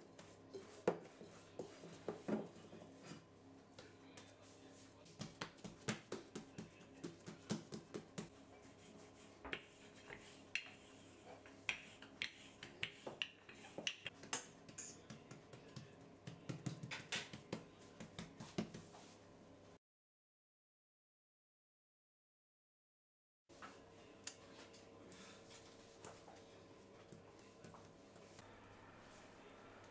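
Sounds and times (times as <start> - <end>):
rolling pin on countertop: 0.2 - 3.2, 9.5 - 19.1
hands patting bread dough: 5.0 - 8.3, 11.7 - 19.1.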